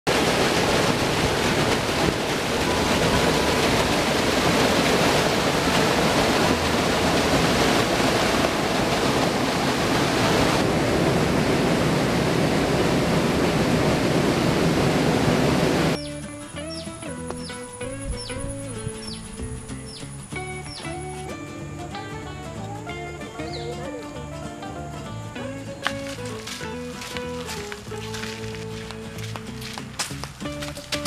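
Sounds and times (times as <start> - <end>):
stream water rushing over rocks: 0.1 - 21.9, 23.4 - 31.0
soft music: 16.0 - 31.0.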